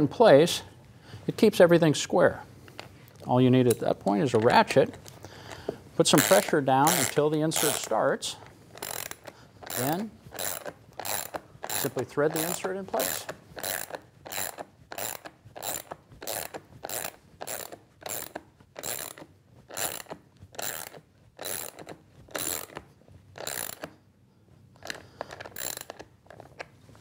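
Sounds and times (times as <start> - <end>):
socket ratchet clicking: 6.2 - 24.0, 24.8 - 26.7.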